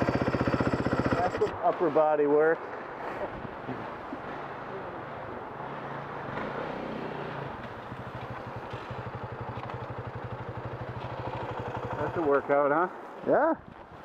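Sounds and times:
dirt bike engines idling: 0:00.0 - 0:01.7, 0:07.0 - 0:13.4.

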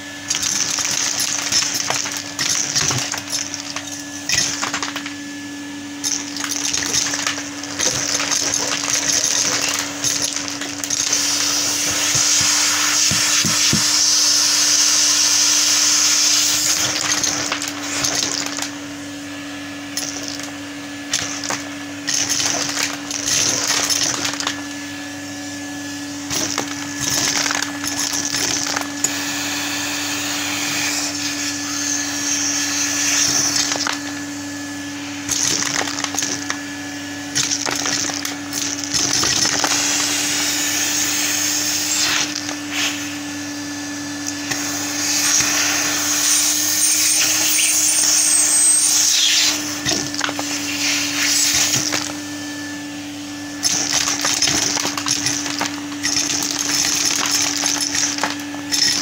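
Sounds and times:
plastic bricks rattling through pipe: 0:00.0 - 0:05.2, 0:06.0 - 0:13.9, 0:16.7 - 0:18.8, 0:20.0 - 0:20.5, 0:21.1 - 0:24.6, 0:26.2 - 0:29.1, 0:33.1 - 0:34.2, 0:35.3 - 0:36.6, 0:37.3 - 0:39.9, 0:53.6 - 0:59.0
vacuum cleaner humming: 0:00.0 - 0:59.0.

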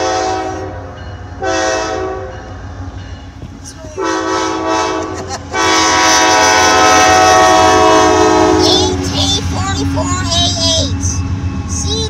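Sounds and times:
locomotive air horn blasts: 0:00.0 - 0:02.4, 0:04.0 - 0:09.0
locomotive rumbling: 0:00.0 - 0:12.0.

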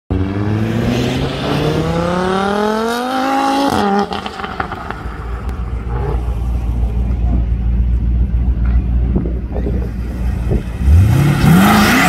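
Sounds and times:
car engine revving hard: 0:00.1 - 0:05.0, 0:10.8 - 0:12.0.

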